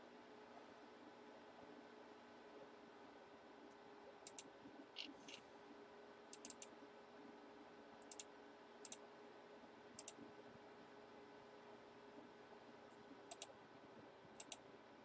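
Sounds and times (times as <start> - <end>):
low room hum: 0.0 - 15.0
computer mouse clicks: 4.2 - 5.4, 6.3 - 6.7, 8.0 - 9.0, 10.0 - 10.2, 12.9 - 13.5, 14.4 - 14.6.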